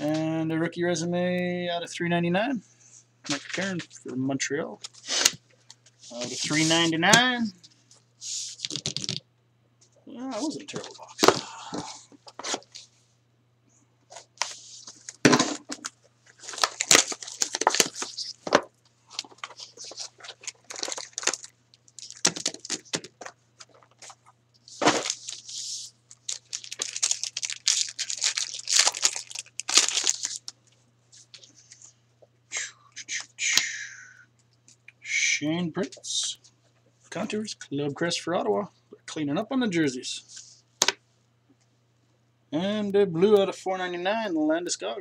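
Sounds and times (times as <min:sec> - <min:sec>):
wrapper ripping and crinkling: 0:14.4 - 0:30.6.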